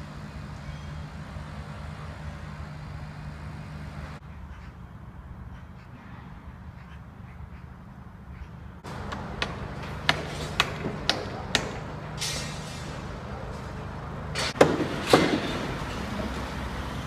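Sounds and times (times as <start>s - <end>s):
low machine hum: 0.0s - 5.6s
sharp knocks: 8.9s - 12.5s, 14.4s - 15.6s.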